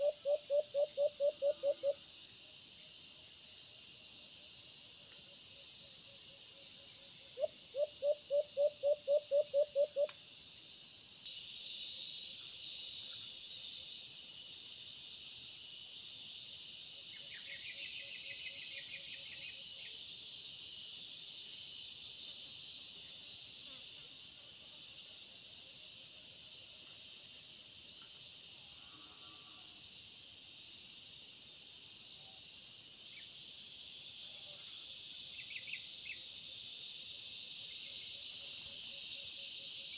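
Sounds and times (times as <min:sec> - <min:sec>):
dove hooting: 0:00.0 - 0:02.0, 0:07.4 - 0:10.1
high insect drone: 0:00.0 - 0:39.9.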